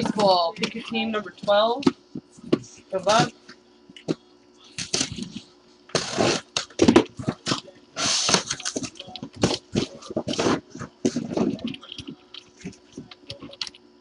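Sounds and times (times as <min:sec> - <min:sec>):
cardboard and tape tearing: 0:04.8 - 0:11.7.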